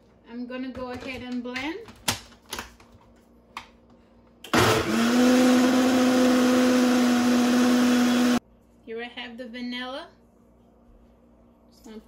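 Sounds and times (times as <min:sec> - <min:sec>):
blender motor whirring: 0:04.5 - 0:08.4.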